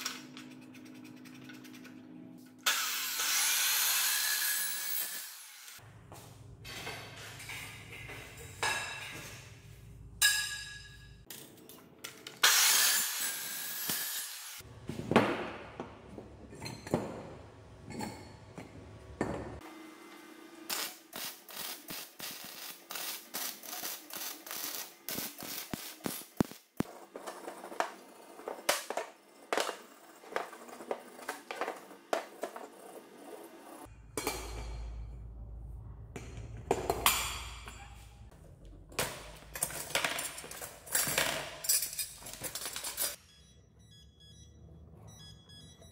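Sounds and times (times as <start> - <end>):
power tool cutting metal: 2.6 - 5.8, 12.4 - 14.6
arc welding crackle: 20.7 - 26.8
steel parts clinking and knocking: 39.0 - 43.2.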